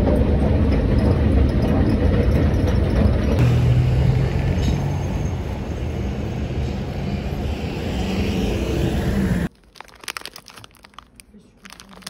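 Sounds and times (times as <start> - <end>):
street traffic rumble: 0.0 - 12.0
plastic wrapper crinkling: 9.5 - 12.0.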